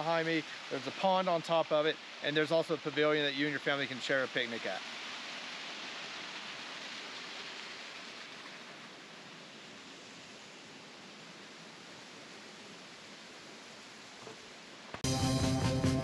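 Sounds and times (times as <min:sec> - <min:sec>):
waterfall rushing over rocks: 0:00.0 - 0:15.0.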